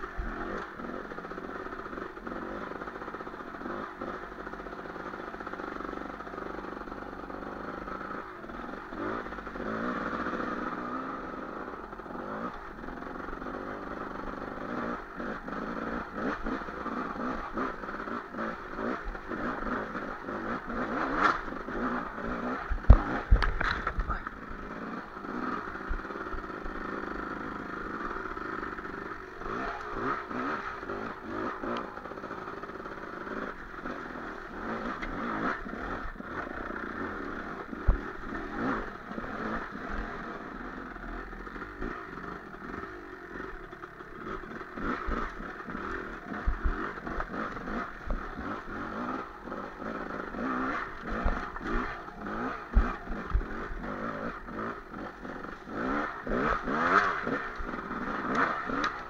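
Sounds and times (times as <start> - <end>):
dirt bike engine revving: 0.0 - 59.0
sharp thumps from bumps: 22.6 - 24.5, 44.8 - 48.8, 50.7 - 54.4
bike clattering over stones: 22.8 - 24.4.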